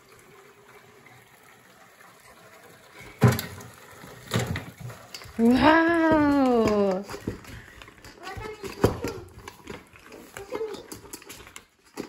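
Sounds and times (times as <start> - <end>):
water pouring into sink: 0.0 - 8.2.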